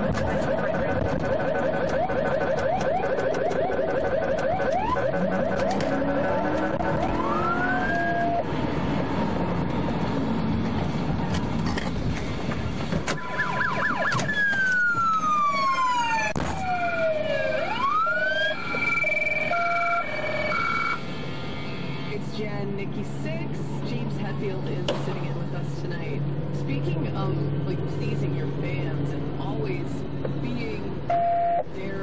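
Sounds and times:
two-tone hi-lo siren: 0.0 - 8.5, 13.2 - 21.0, 31.1 - 31.7
police sirens wailing: 0.0 - 8.6, 13.1 - 21.0, 31.1 - 31.8.

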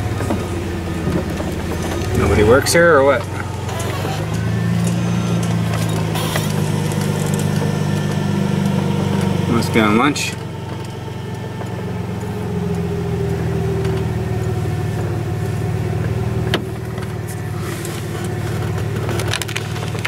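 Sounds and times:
truck engine running low speed: 0.0 - 20.0.

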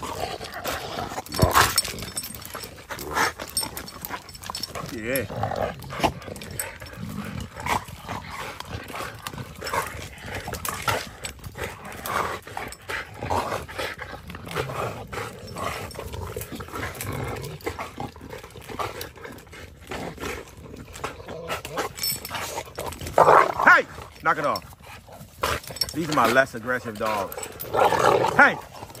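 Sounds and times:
dogs chewing a stick: 0.0 - 29.0
dogs growling: 0.0 - 29.0.

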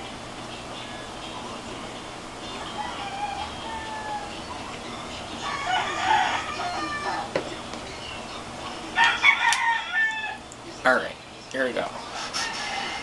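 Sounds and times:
rooster crowing: 2.5 - 4.5, 5.4 - 7.3, 9.0 - 10.4, 12.3 - 13.0.

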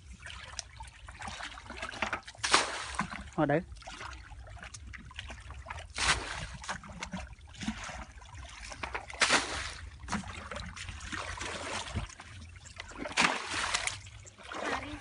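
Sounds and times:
muddy water splashing: 0.0 - 15.0.

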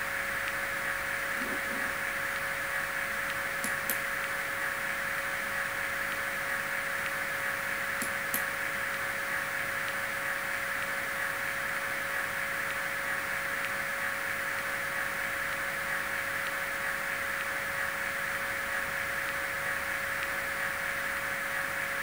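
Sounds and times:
speaker hiss with hum: 0.0 - 22.0
faint ticks: 3.2 - 4.4, 8.0 - 9.0.

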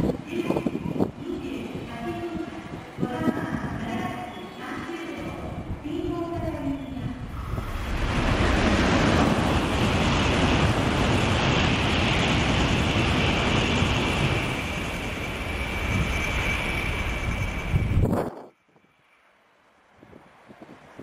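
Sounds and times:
train rushing past at high speed: 0.0 - 19.2
high whine: 7.1 - 18.5.

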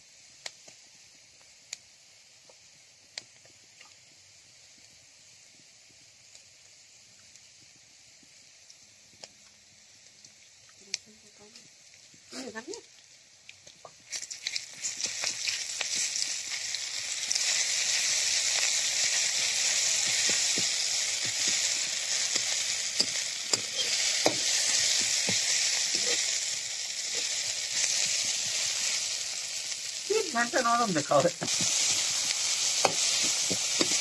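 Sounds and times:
onion sizzling in hot oil: 0.0 - 34.0
metal spatula scraping a pan: 23.0 - 24.8.

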